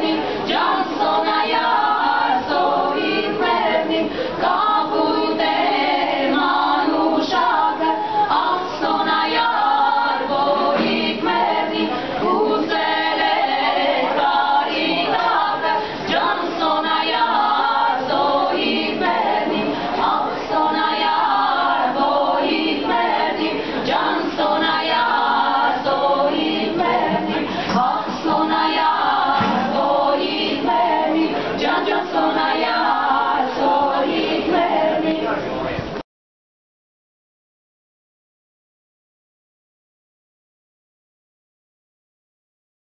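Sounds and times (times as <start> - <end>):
women singing a cappella: 0.0 - 35.6.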